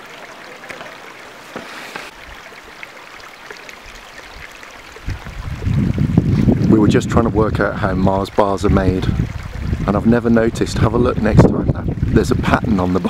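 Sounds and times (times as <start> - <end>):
stream and waterfall rushing: 0.0 - 5.2
wind buffeting microphone: 5.0 - 12.9.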